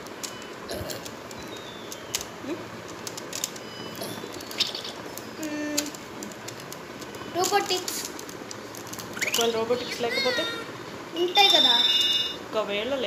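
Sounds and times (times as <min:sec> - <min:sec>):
high electronic beeps: 0:03.6 - 0:05.1, 0:09.2 - 0:10.0, 0:11.2 - 0:12.4.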